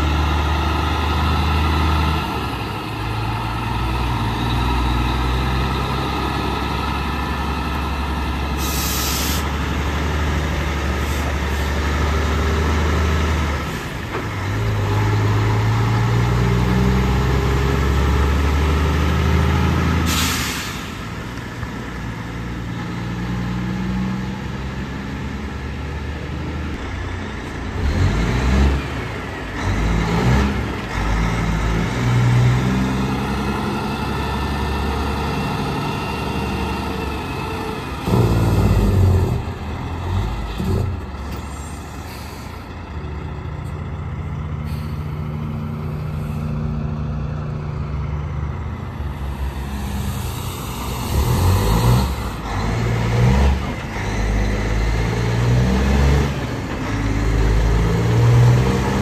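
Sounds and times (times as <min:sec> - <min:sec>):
truck engines running: 0:00.0 - 0:59.0
air brake hisses: 0:08.6 - 0:09.5, 0:20.0 - 0:21.1, 0:41.5 - 0:42.6, 0:44.6 - 0:45.2.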